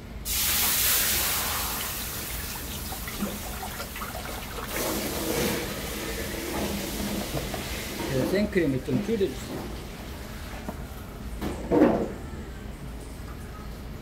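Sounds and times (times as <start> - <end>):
cream sizzling in hot wok: 0.3 - 3.1.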